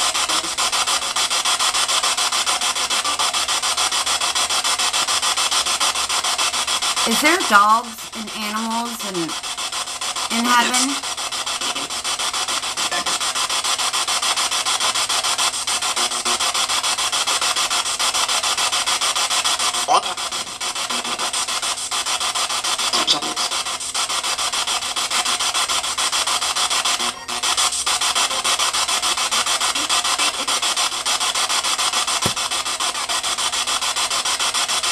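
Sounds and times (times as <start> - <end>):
pulsing radio static: 0.0 - 34.9
sliding snatches of radio sound: 0.0 - 34.9.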